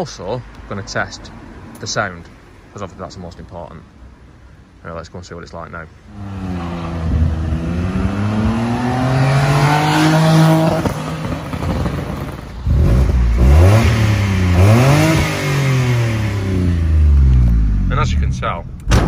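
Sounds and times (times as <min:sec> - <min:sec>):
engine revving: 0:06.1 - 0:18.6.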